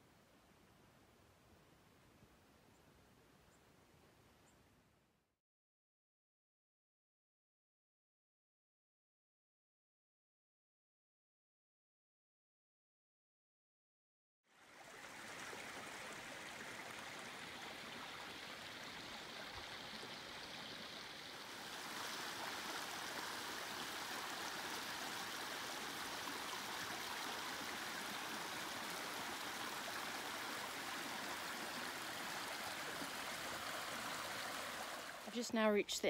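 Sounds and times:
creek water rushing over rocks: 0:14.5 - 0:35.4.

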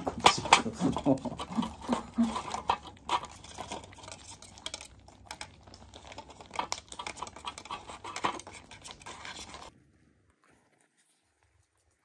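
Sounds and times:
kittens eating from foil trays: 0:00.0 - 0:12.0.

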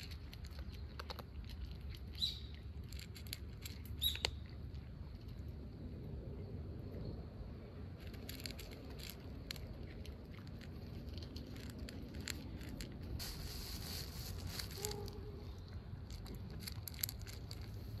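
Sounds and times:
cat crunching dry food: 0:00.0 - 0:18.0
low background rumble: 0:00.0 - 0:18.0
soft hiss: 0:13.0 - 0:15.6.

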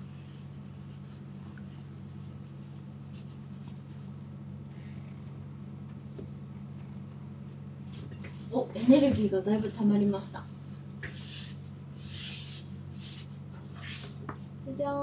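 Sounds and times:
steady low hum: 0:00.0 - 0:15.0
hands scratching cat fur: 0:00.1 - 0:04.4, 0:11.1 - 0:14.1.

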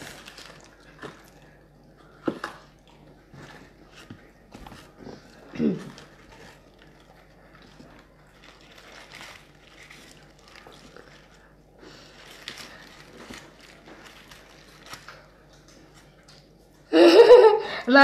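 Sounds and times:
paper bags crinkling: 0:00.0 - 0:01.6, 0:03.6 - 0:16.1
eating handling noises: 0:00.0 - 0:16.9.

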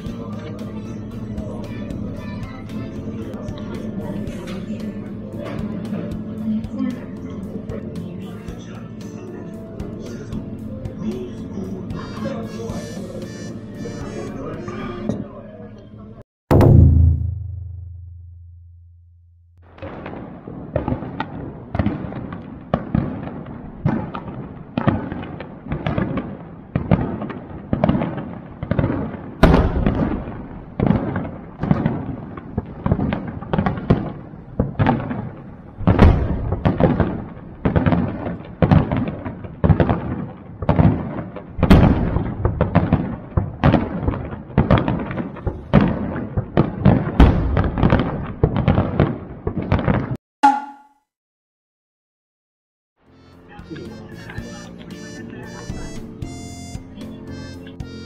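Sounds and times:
fireworks booming: 0:16.5 - 0:18.6, 0:19.6 - 0:50.2
loud fireworks bangs: 0:19.6 - 0:50.2.

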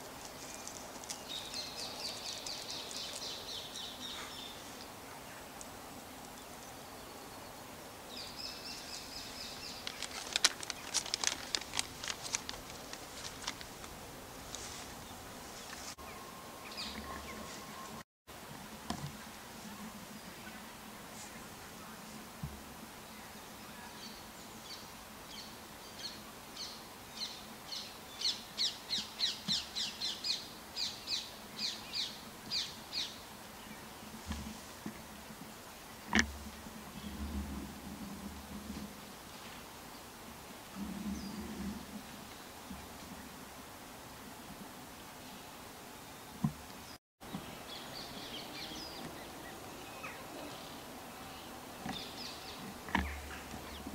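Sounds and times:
sharp irregular clicking: 0:09.7 - 0:13.9.

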